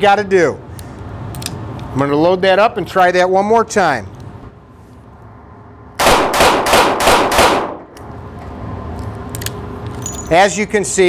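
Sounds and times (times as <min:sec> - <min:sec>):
revolver shots echoing indoors: 0:05.4 - 0:08.2.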